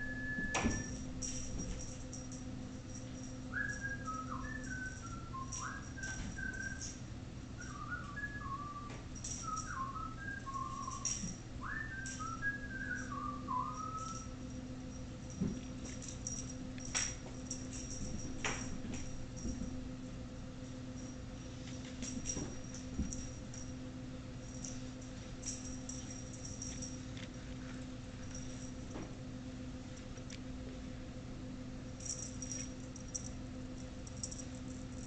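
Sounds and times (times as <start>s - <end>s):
person whistling a tune: 0.0s - 1.0s, 3.5s - 7.0s, 7.6s - 14.4s.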